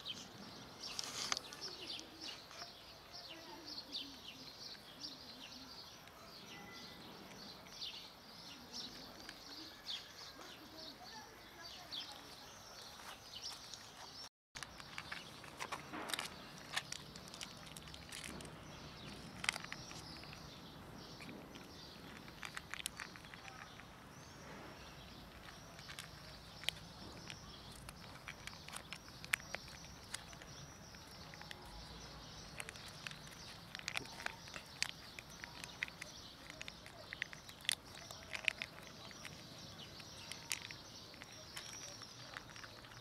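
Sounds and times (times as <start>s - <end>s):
cats crunching dry kibble: 0.0s - 6.4s, 7.1s - 10.9s, 14.6s - 43.0s.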